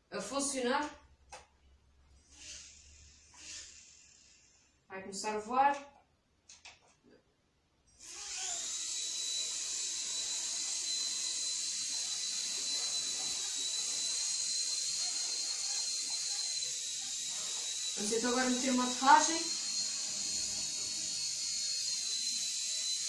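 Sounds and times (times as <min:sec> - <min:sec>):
electric motors whining: 0:08.0 - 0:23.0.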